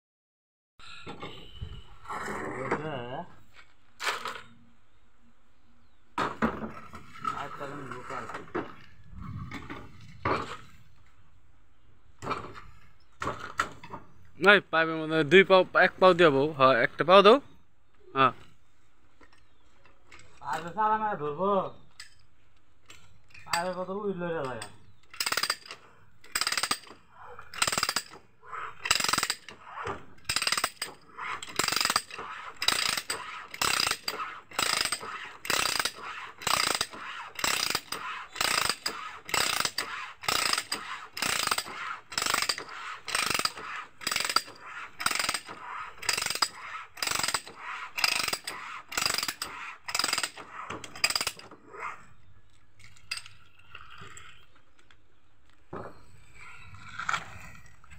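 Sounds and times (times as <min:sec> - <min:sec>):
ratchet die cutting pipe thread: 0:28.8 - 0:51.5.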